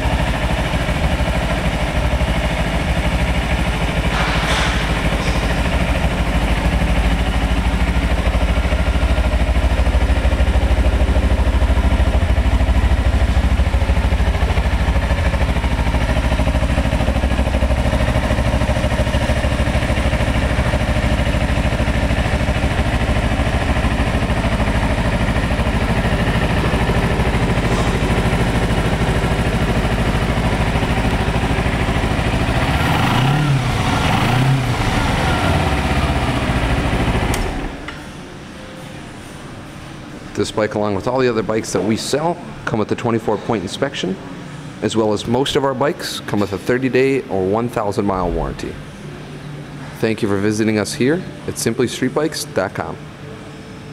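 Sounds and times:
motorcycle engine idling: 0:00.0 - 0:38.2.

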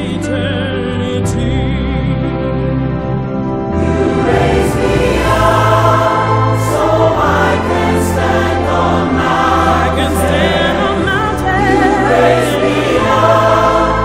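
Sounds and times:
held bass accompaniment: 0:00.0 - 0:14.0
choir singing: 0:03.6 - 0:14.0.

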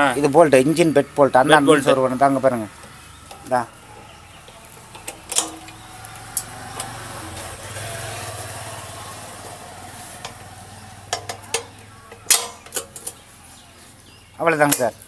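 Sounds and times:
sharp metal taps: 0:02.8 - 0:05.8, 0:11.1 - 0:13.2
bolt clicking and scraping metal: 0:02.8 - 0:07.5, 0:11.1 - 0:13.3.

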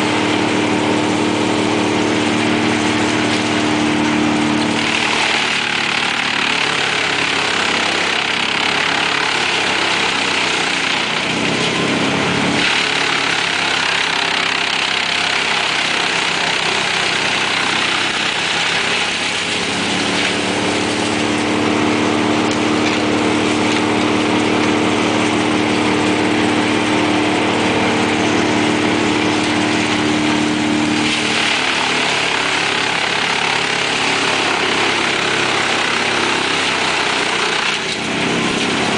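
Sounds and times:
wood chipper engine: 0:00.0 - 0:38.9
wood being chipped: 0:04.4 - 0:21.5, 0:30.8 - 0:38.9.

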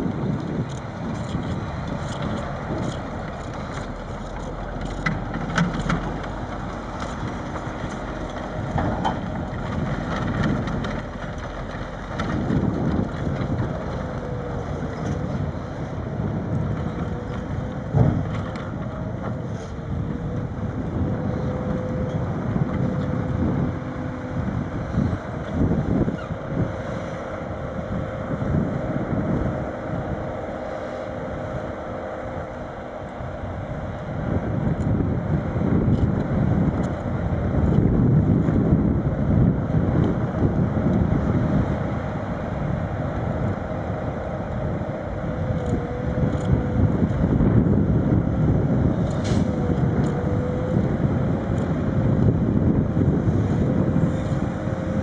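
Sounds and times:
heavy diesel engines running: 0:00.0 - 0:55.0
steady whine: 0:00.0 - 0:55.0
wind buffeting microphone: 0:00.0 - 0:55.0.

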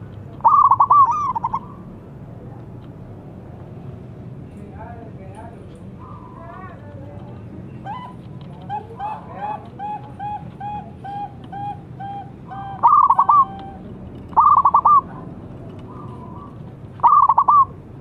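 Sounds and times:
dove cooing: 0:00.0 - 0:02.0, 0:07.8 - 0:17.8.

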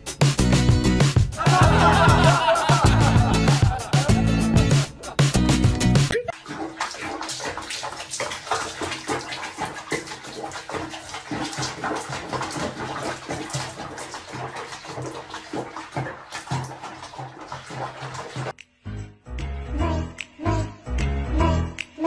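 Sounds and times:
water sloshing in plastic basin: 0:06.1 - 0:18.6.

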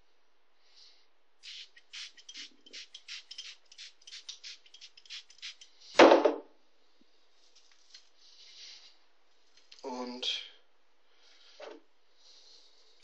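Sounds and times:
spray bottle squirts: 0:01.4 - 0:05.7.

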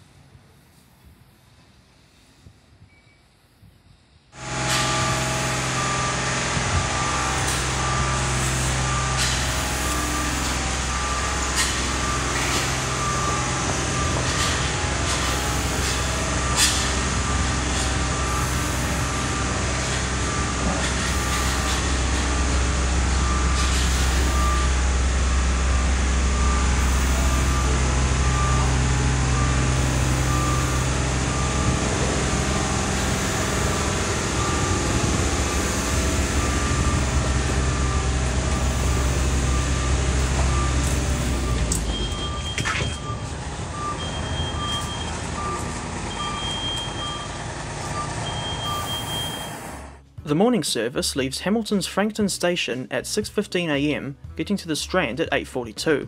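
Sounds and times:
loud low hum: 0:04.4 - 0:52.3
short electronic beeps: 0:23.1 - 0:24.8, 0:25.5 - 0:49.8.

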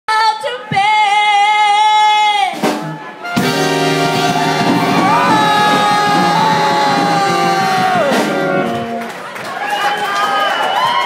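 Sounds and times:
band playing with brass: 0:02.6 - 0:09.2.

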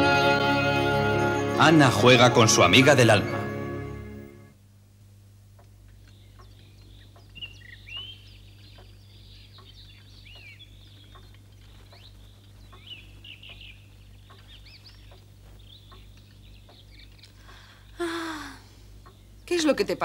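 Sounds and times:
low steady hum: 0:00.0 - 0:20.0
small birds chirping: 0:05.4 - 0:20.0.

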